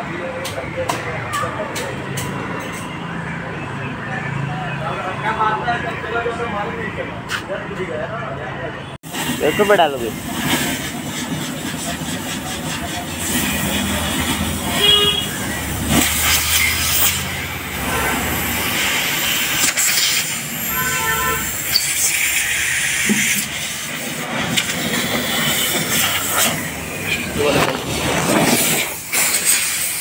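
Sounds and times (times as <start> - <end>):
hose hissing: 9.1 - 30.0.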